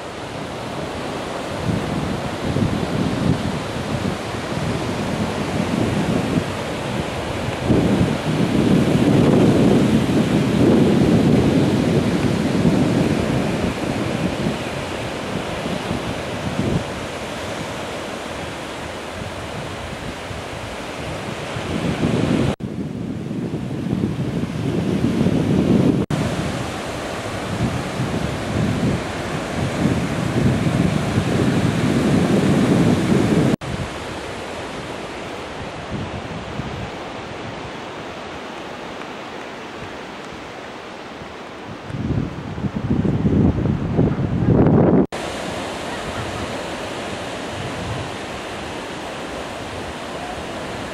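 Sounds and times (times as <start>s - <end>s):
wind buffeting microphone: 0.0s - 38.4s, 39.8s - 50.9s
surf washing on shore: 0.0s - 50.9s.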